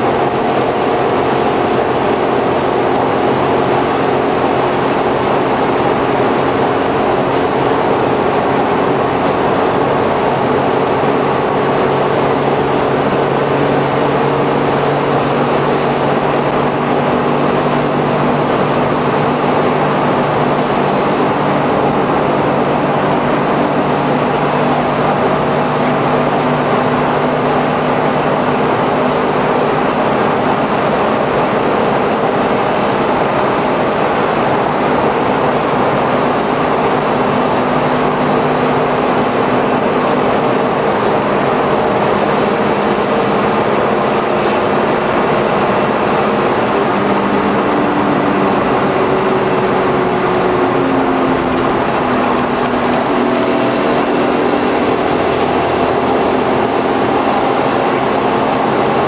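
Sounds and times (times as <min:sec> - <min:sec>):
low engine hum: 0:00.0 - 0:59.0
tyre and road noise: 0:00.0 - 0:59.0.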